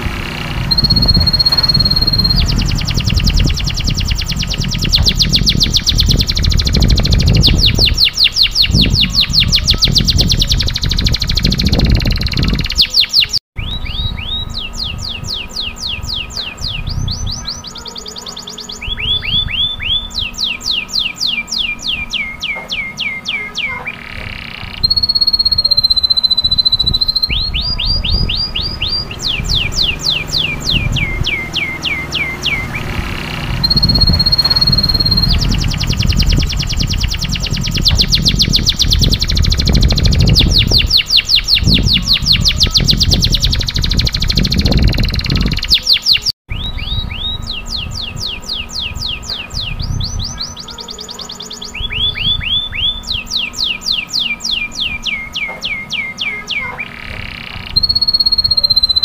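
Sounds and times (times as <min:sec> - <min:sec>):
low rumble: 0:00.0 - 0:08.0
canary singing trills: 0:00.0 - 0:59.0.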